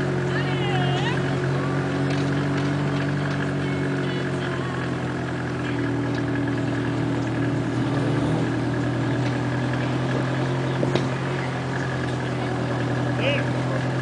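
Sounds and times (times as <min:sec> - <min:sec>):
car engine humming at low revs: 0:00.0 - 0:14.0.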